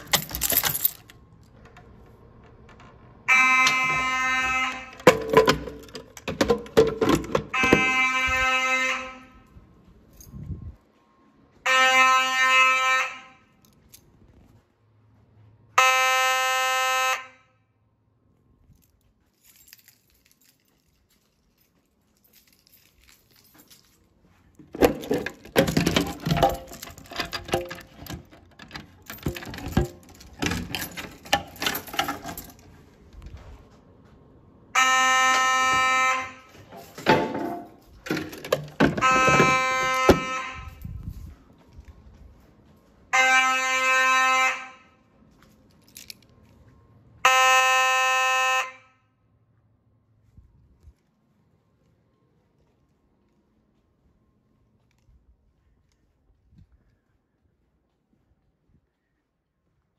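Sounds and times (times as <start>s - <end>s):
fire alarm horn blasts: 3.2s - 5.1s, 7.4s - 9.6s, 11.6s - 13.6s, 15.8s - 17.8s, 34.7s - 36.8s, 39.0s - 41.0s, 43.1s - 45.1s, 47.2s - 49.2s.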